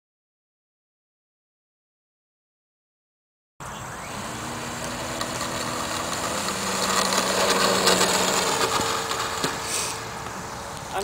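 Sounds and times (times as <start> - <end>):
model plane electric motor: 3.6 - 11.0.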